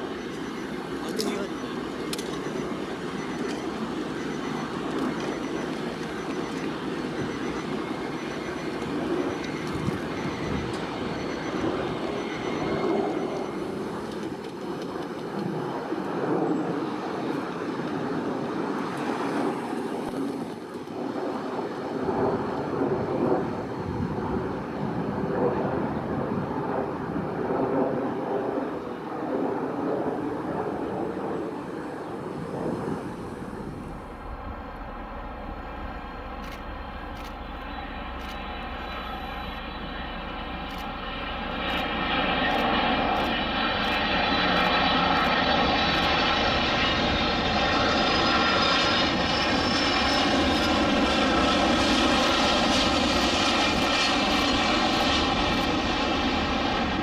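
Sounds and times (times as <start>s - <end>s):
faint high whine: 0.0s - 14.4s, 31.4s - 57.0s
jet engines rushing: 0.0s - 57.0s.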